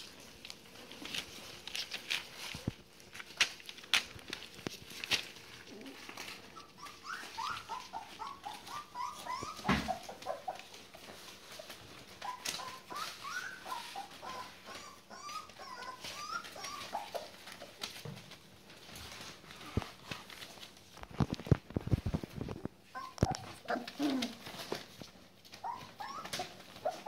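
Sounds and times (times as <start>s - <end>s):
paws rustling on newspaper: 0.0s - 27.0s
puppies whimpering: 5.6s - 18.0s, 22.8s - 27.0s.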